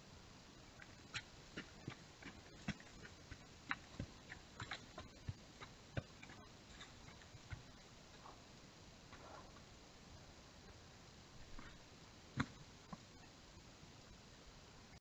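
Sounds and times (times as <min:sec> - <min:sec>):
steady hiss: 0:00.0 - 0:15.0
deer walking on dry ground: 0:00.7 - 0:08.4.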